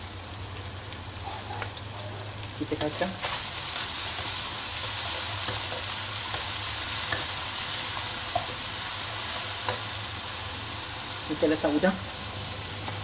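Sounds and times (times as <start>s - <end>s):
food sizzling in a wok: 0.0s - 13.0s
spatula scraping a pan: 1.2s - 9.9s.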